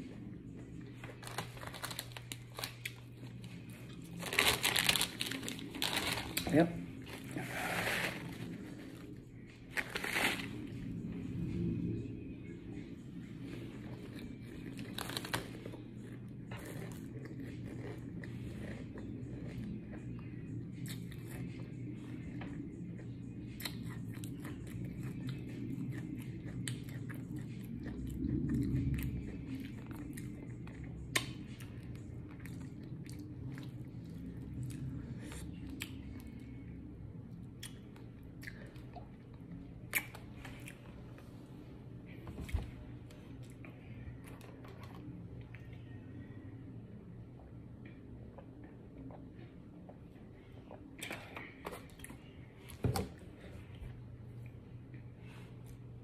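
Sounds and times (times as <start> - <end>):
low room hum: 0.0 - 56.0
chewing food: 13.8 - 36.6.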